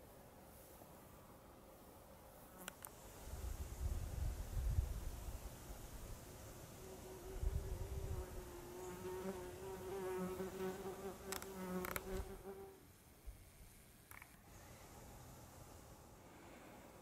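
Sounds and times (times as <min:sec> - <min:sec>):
insect wings buzzing: 0:06.8 - 0:12.8.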